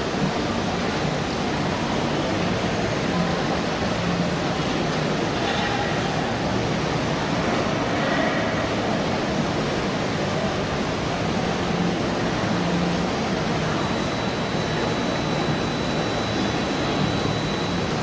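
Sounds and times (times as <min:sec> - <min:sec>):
atrium ambient noise: 0:00.0 - 0:18.0
faint thin high tone: 0:13.6 - 0:18.0.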